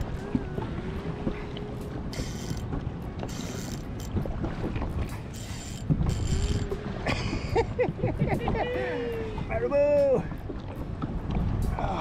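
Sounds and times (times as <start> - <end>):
fishing reel gears whirring and clicking: 0.0 - 4.3, 5.1 - 6.9
wind noise on microphone: 0.0 - 12.0.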